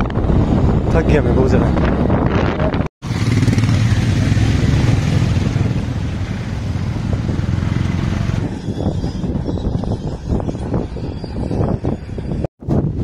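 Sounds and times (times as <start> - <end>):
motorcycle engine running: 3.0 - 8.5.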